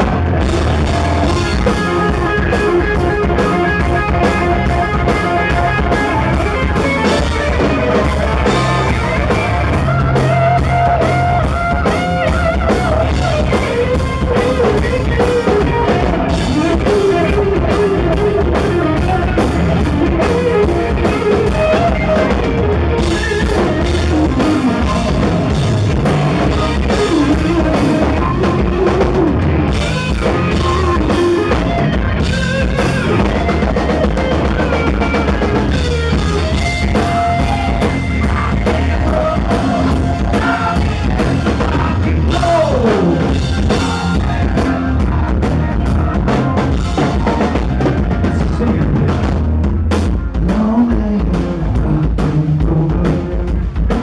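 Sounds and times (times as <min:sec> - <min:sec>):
electric guitar solo: 0:00.0 - 0:41.4
drum kit: 0:00.0 - 0:54.0.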